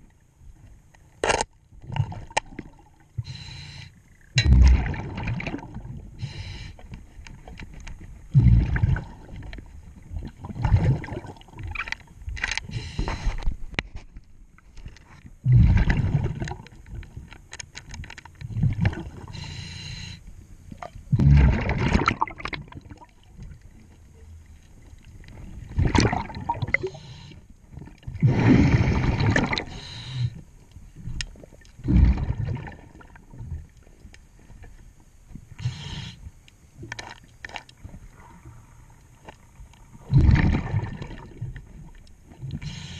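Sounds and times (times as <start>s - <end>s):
exhaled bubbles gurgling underwater: 1.7s - 3.5s, 4.2s - 6.7s, 8.2s - 12.1s, 15.4s - 17.3s, 18.4s - 19.6s, 20.8s - 34.0s, 35.4s - 42.9s
regulator inhalation hiss: 3.2s - 4.0s, 6.2s - 6.8s, 12.7s - 13.4s, 19.3s - 20.2s, 26.8s - 27.4s, 29.7s - 30.4s, 35.6s - 36.3s, 42.6s - 42.9s.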